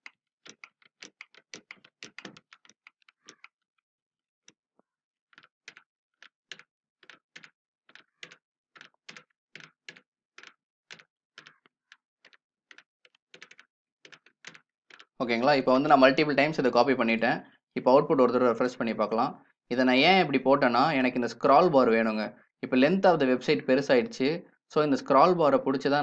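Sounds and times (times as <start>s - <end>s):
keyboard keys clicking: 0.0s - 3.6s, 5.3s - 15.5s.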